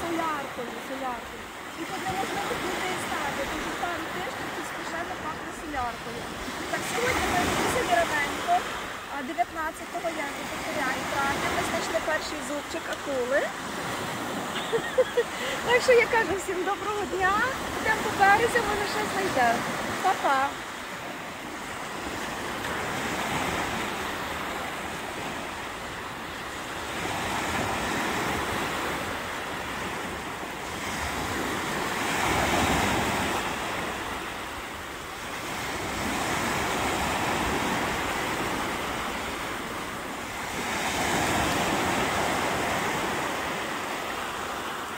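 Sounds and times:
small waves breaking on sand: 0.0s - 44.9s.

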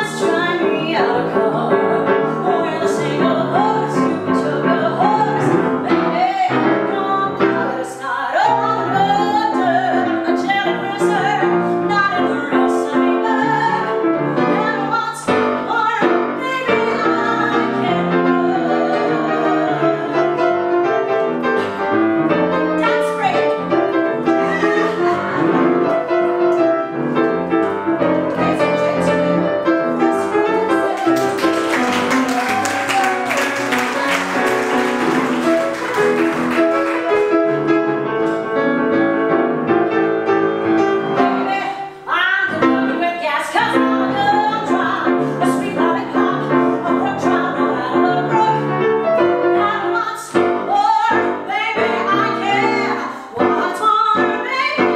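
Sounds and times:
woman singing: 0.0s - 20.8s, 22.7s - 26.0s, 28.0s - 31.6s, 40.7s - 54.9s
grand piano: 0.0s - 54.9s.

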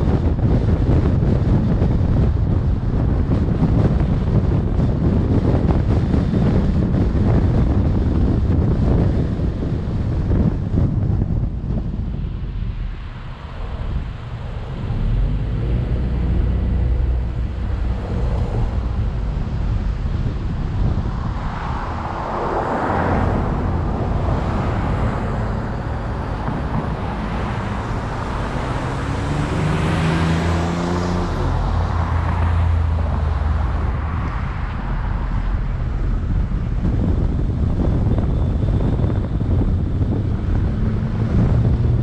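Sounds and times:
engine speeding up: 0.0s - 42.0s
tyre and engine rumble: 0.0s - 42.0s
vehicles passing: 0.0s - 42.0s.

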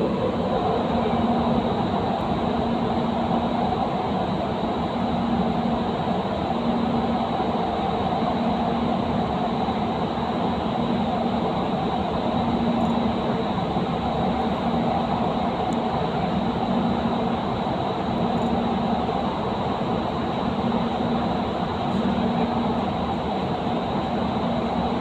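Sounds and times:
faint hum: 0.0s - 25.0s.

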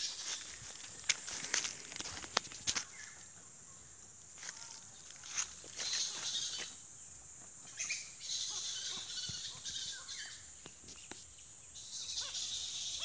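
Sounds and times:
bats squeaking and chattering: 5.3s - 6.8s, 7.6s - 13.0s.

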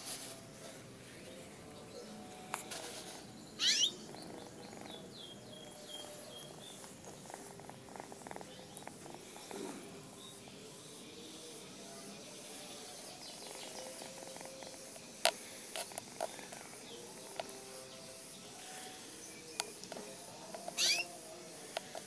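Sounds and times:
kitten purring: 1.3s - 11.4s, 12.4s - 17.4s.

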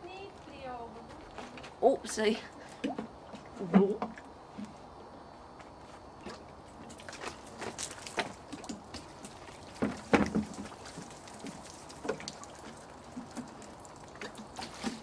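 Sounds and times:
water dripping on plastic lid: 6.9s - 15.0s.

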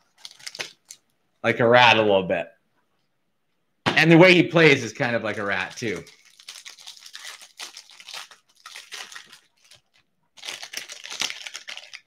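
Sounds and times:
foil wrapper crinkling and tearing: 0.0s - 1.1s, 5.3s - 12.0s.

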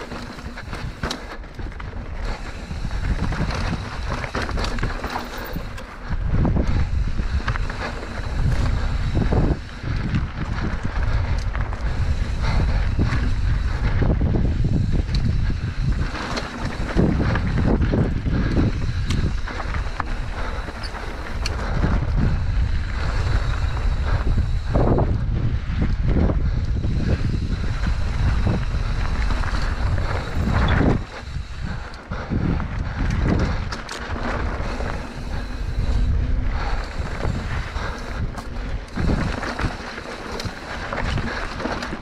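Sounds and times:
small clicks and rattles: 0.0s - 12.0s
bike tyres on dirt and rock: 0.0s - 42.0s
wind buffeting microphone: 0.0s - 42.0s.

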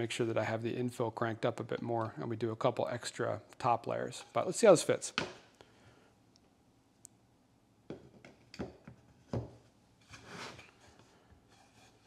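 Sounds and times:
pipe scraping slide: 10.0s - 12.0s.

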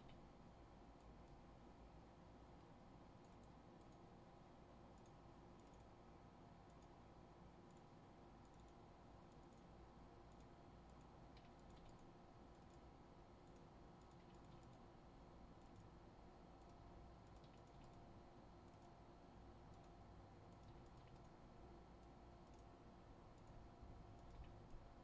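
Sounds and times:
faint room hum: 0.0s - 25.0s
typing on computer keyboard: 5.0s - 5.9s, 7.7s - 9.7s, 10.3s - 14.8s, 16.6s - 18.0s, 19.7s - 21.4s.

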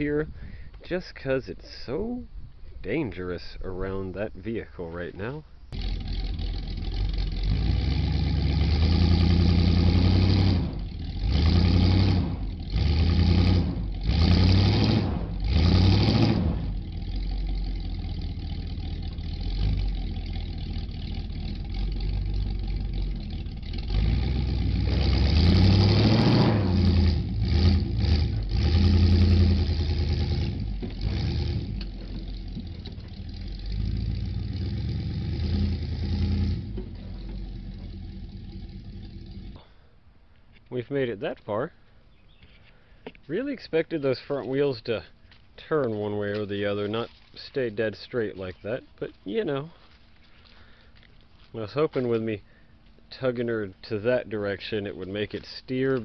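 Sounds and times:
truck engine revving: 5.7s - 39.6s.

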